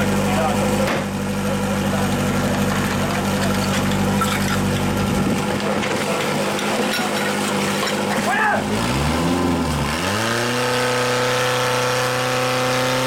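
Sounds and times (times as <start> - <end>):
pump engine idling: 0.0 - 8.8.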